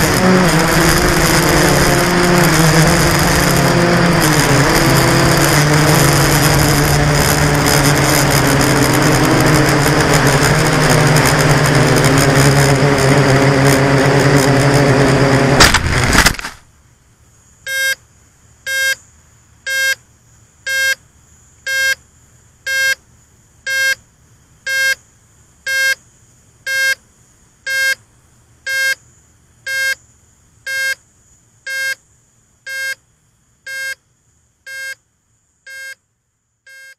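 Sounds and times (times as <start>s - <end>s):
quadcopter motors and propellers: 0.0s - 16.6s
short beeps: 17.7s - 18.0s, 18.7s - 19.0s, 26.7s - 27.0s, 27.7s - 28.0s, 28.7s - 29.0s, 29.7s - 30.0s, 30.7s - 31.0s, 31.7s - 32.0s, 32.7s - 33.0s, 33.7s - 34.0s, 34.7s - 35.0s, 35.7s - 36.0s, 36.7s - 36.9s.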